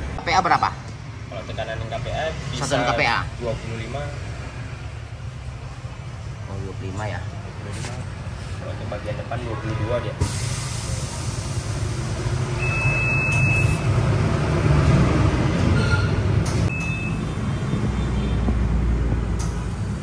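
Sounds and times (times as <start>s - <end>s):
electronic beep: 12.6s - 14.0s, 16.7s - 17.3s.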